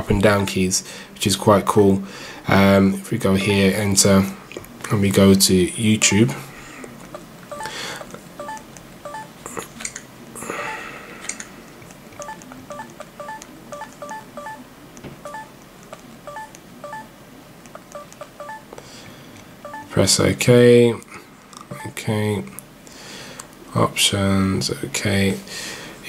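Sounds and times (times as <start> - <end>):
touchscreen keypad beeps: 8.4 - 9.3, 12.2 - 14.6, 15.2 - 17.1, 17.8 - 18.7, 19.6 - 19.9.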